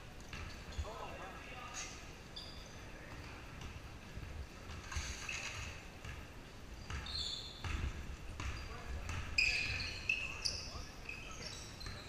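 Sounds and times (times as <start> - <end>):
low rumble of large hall: 0.0 - 12.0
sneakers squeaking on hardwood floor: 6.8 - 12.0.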